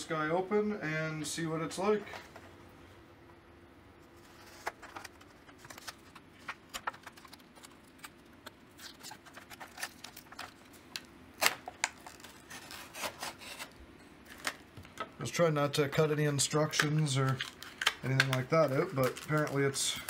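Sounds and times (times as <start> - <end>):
stiff plastic crackling: 4.2 - 20.0
knife cutting plastic packaging: 8.8 - 10.7, 11.4 - 14.6, 16.7 - 20.0.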